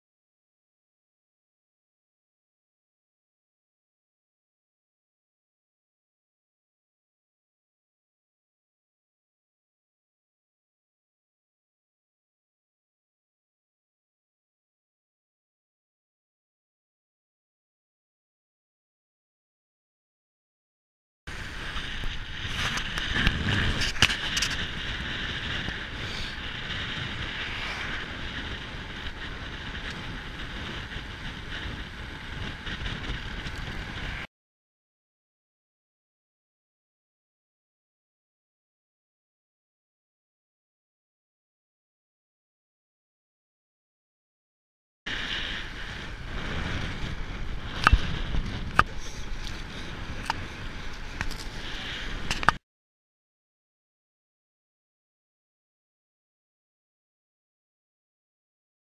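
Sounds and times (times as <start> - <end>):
road rumble: 21.3 - 34.3, 45.1 - 52.6
wind rushing over microphone: 21.3 - 34.3, 45.1 - 52.6.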